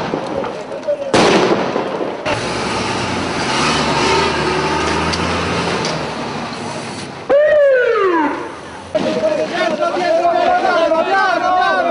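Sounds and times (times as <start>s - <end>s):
firecracker bang: 0.0s - 2.4s, 8.9s - 9.9s.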